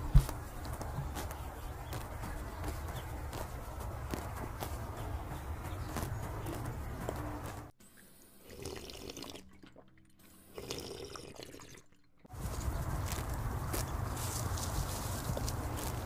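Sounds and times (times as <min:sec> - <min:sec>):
steady low hum: 0:00.0 - 0:08.4
person gulping water: 0:08.5 - 0:10.0, 0:10.6 - 0:11.9.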